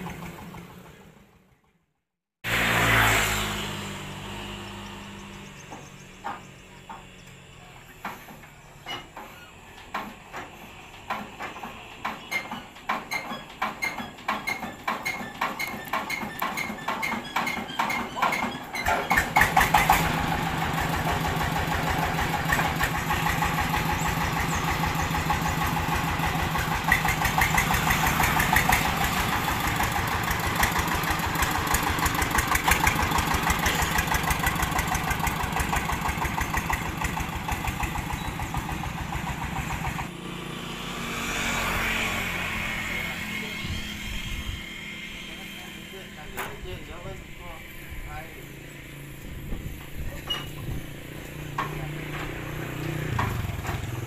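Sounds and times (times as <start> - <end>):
diesel engine running: 0.0 - 1.6, 2.5 - 54.0
hand-cranked engine thuds: 7.9 - 20.1, 51.5 - 54.0.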